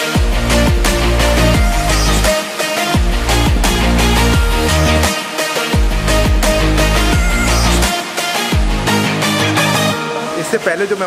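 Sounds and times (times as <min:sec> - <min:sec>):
electronic music with steady beat: 0:00.0 - 0:11.0.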